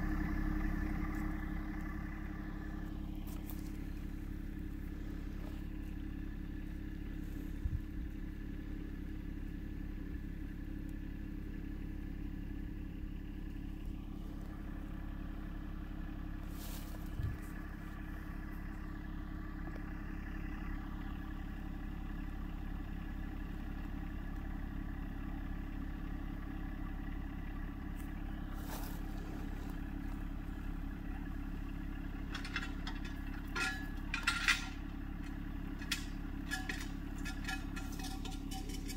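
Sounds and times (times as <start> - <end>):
tractor diesel engine running: 0.0 - 38.9
sharp clanks and rattles: 28.7 - 38.9.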